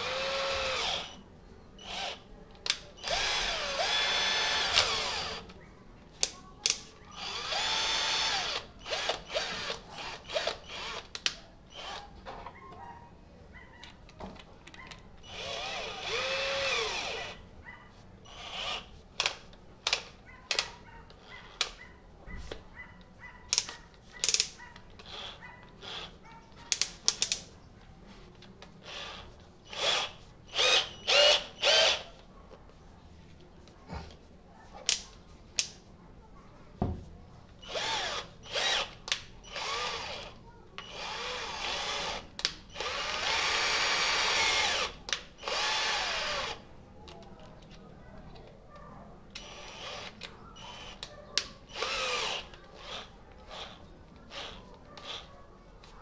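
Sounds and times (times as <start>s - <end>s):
cordless drill motor whirring: 0.0s - 1.2s, 1.8s - 2.2s, 3.0s - 5.5s, 7.1s - 12.1s, 15.2s - 17.4s, 18.3s - 20.6s, 25.0s - 26.2s, 28.8s - 32.1s, 37.6s - 46.7s, 49.4s - 51.1s, 51.7s - 55.3s.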